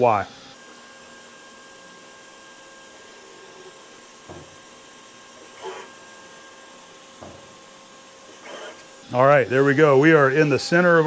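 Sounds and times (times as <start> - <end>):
machine hum: 0.0 - 11.0
soft knock: 7.2 - 7.5
short whirr: 8.3 - 8.9.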